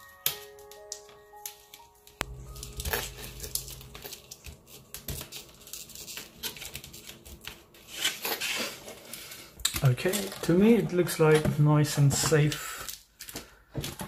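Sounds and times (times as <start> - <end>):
tape pressed down crinkling: 0.2 - 11.4.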